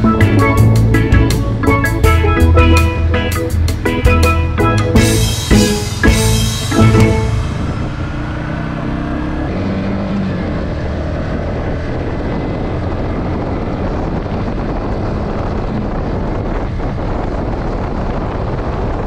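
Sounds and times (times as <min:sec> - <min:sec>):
motorcycle engine running: 0:00.0 - 0:19.0
wind noise on microphone: 0:00.0 - 0:19.0.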